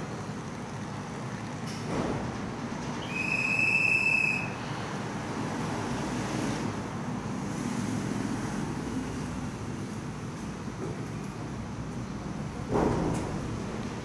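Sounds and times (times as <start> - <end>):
monorail cars humming: 0.0 - 14.0.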